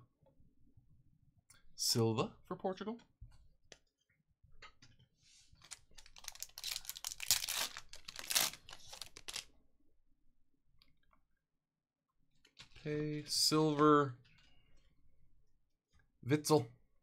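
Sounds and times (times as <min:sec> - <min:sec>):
foil wrapper tearing and crinkling: 0:05.6 - 0:09.5.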